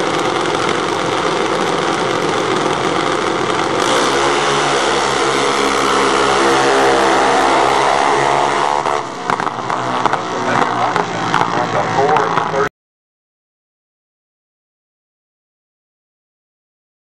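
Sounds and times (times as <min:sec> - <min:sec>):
small dragster engines buzzing: 0:00.0 - 0:12.7.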